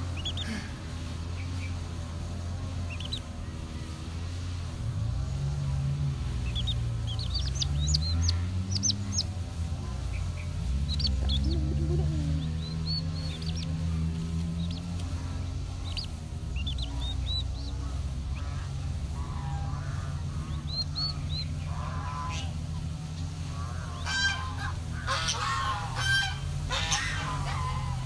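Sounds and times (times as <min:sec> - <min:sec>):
chicks peeping: 0:00.0 - 0:04.8, 0:05.7 - 0:28.0
steady low hum: 0:00.0 - 0:28.0
geese honking: 0:06.2 - 0:28.0.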